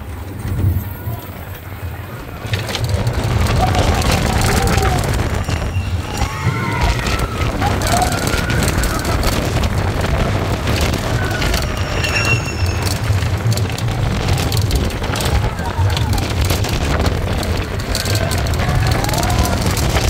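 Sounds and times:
roller coaster wheels rumbling: 0.0s - 20.0s
riders calling out: 0.7s - 20.0s
rushing air: 4.3s - 18.6s.

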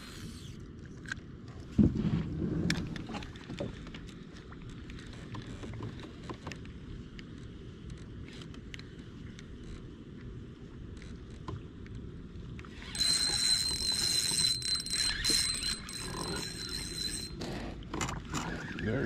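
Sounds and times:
fishing reel whirring: 0.0s - 0.6s, 12.7s - 19.0s.

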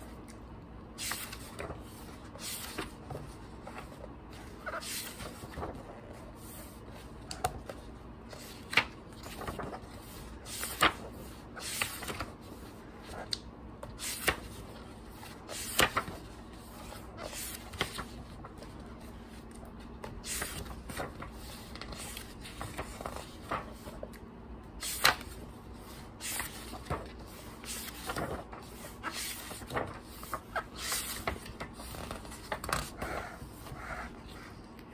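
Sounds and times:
book pages turning: 0.0s - 34.9s
paper rustling and sliding: 0.9s - 13.3s, 13.9s - 24.1s, 24.8s - 34.6s.

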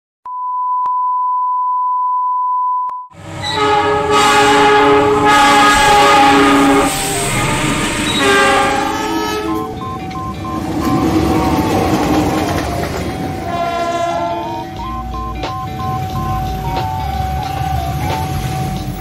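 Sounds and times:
test-tone beep: 0.3s - 3.1s, 9.1s - 12.1s, 14.4s - 19.0s
train passing: 3.2s - 19.0s
locomotive horn blasts: 3.4s - 9.9s, 13.3s - 14.9s.

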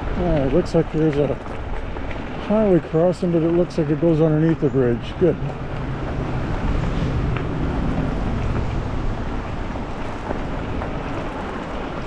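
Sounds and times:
bike tyres rumbling on rough trail: 0.0s - 12.0s.

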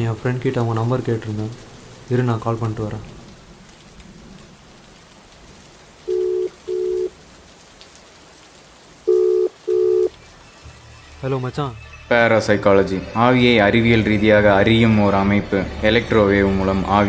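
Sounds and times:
background hiss: 0.0s - 17.0s
telephone ringback tone: 6.1s - 7.1s, 9.1s - 10.1s.

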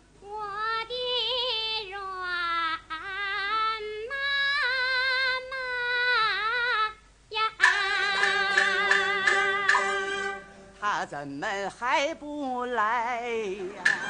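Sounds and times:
woman singing opera: 0.2s - 14.0s
sharp percussive strike: 7.6s - 10.7s
instrumental accompaniment: 7.6s - 11.0s, 13.7s - 14.0s.

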